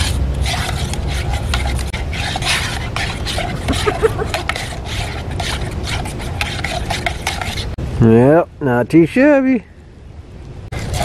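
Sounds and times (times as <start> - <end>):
spoon scraping metal mug: 0.0 - 7.8, 10.8 - 11.0.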